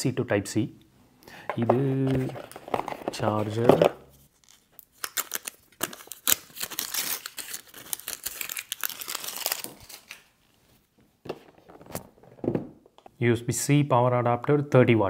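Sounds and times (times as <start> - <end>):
plastic wrapping crinkling and tearing: 2.0 - 10.4.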